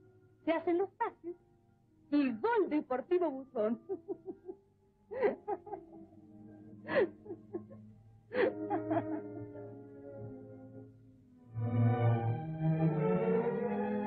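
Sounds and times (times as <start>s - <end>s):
quiet sustained music: 0.0s - 14.0s
woman laughing softly: 3.8s - 6.0s, 6.8s - 9.8s.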